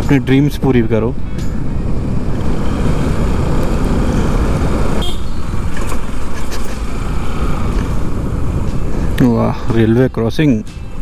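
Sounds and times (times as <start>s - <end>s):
wind rush on microphone: 1.2s - 9.2s.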